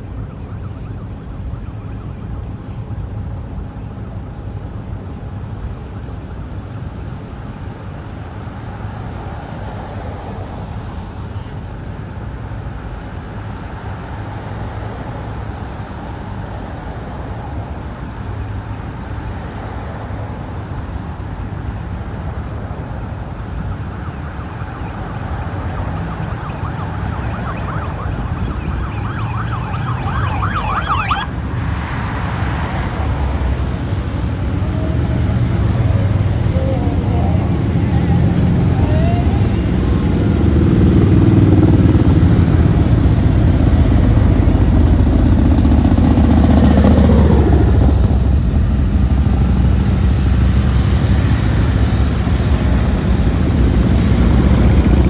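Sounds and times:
police sirens: 0.0 - 4.8, 21.6 - 31.5, 32.5 - 55.0
engines and traffic rumble: 0.0 - 55.0
fast warbling siren: 0.1 - 2.6, 23.7 - 31.3, 34.2 - 48.7
motorcycles passing: 24.7 - 55.0.

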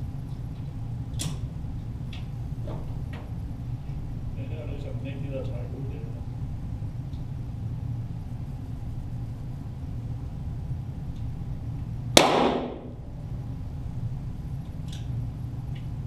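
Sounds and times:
low hum: 0.0 - 16.0
pistol shot crack: 12.2 - 13.0.

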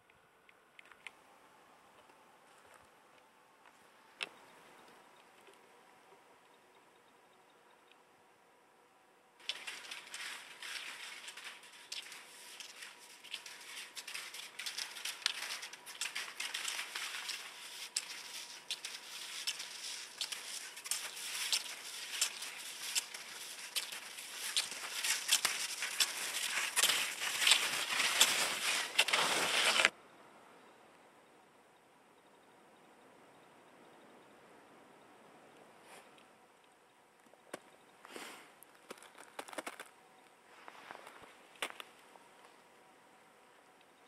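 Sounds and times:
skis crunching through dry snow: 9.4 - 29.9, 40.5 - 41.8.

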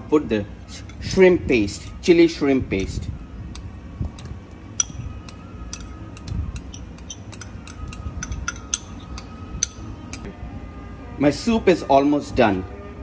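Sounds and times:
spoon clinking on ceramic bowl: 3.6 - 10.3.

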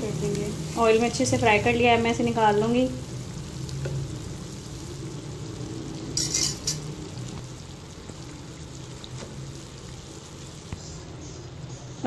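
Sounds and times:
fritters sizzling in hot oil: 0.0 - 12.0
spoon scraping: 6.1 - 6.9.

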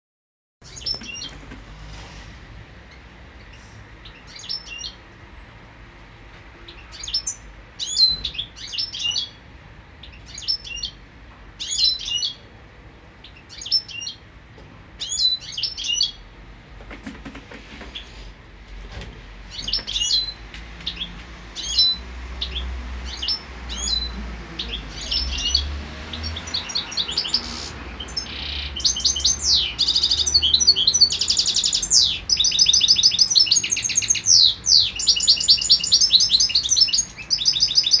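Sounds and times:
goldfinches chirping and twittering: 2.9 - 5.0, 6.6 - 9.4, 10.0 - 11.0, 11.6 - 12.4, 13.2 - 14.2, 15.0 - 16.2, 19.5 - 38.0.

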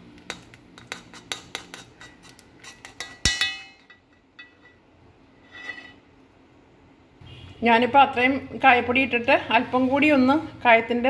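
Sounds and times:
metal spoon scraping pot: 0.3 - 4.8, 5.4 - 6.1
ringing metal clang: 3.0 - 4.8.

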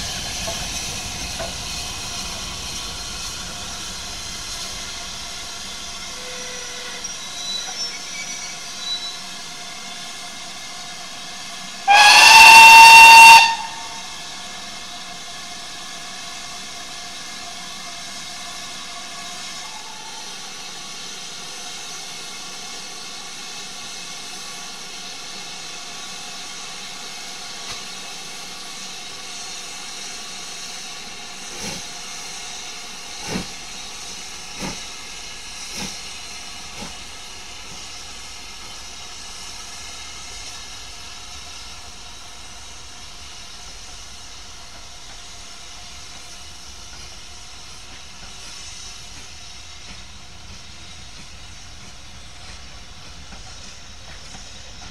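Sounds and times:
steam hissing: 0.0 - 54.9
steam locomotive whistle: 6.0 - 9.2, 11.8 - 14.4.

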